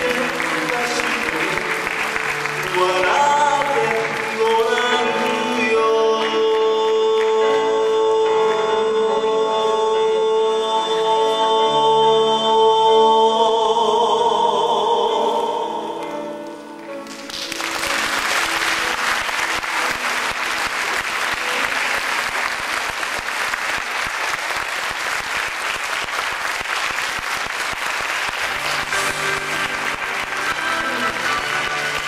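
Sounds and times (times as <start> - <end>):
audience applauding: 0.0 - 7.7, 17.0 - 32.0
music: 0.0 - 32.0.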